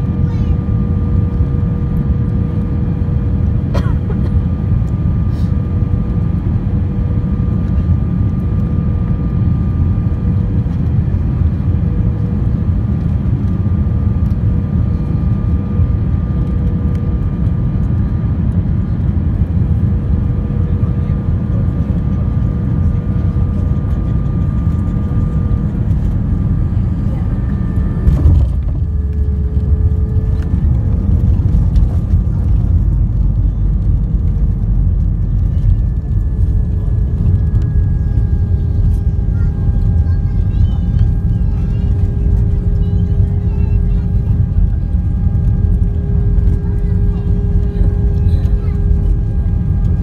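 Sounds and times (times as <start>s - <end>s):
airplane cabin rumble: 0.0s - 50.0s
steady engine whine: 0.0s - 50.0s.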